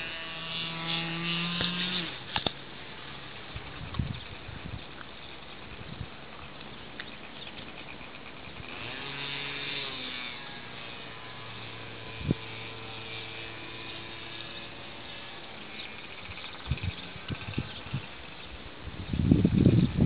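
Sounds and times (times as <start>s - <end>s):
low motor-like hum: 0.0s - 20.0s.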